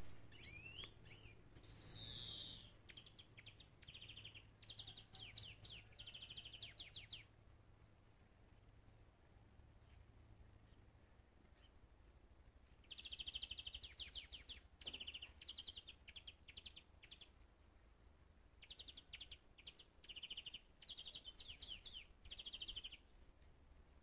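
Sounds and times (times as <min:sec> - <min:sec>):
songbird trilling: 0:00.0 - 0:07.3.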